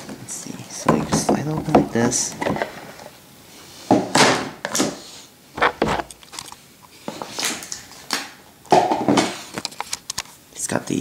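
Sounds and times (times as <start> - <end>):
cardboard scraping and rustling: 5.6 - 6.4.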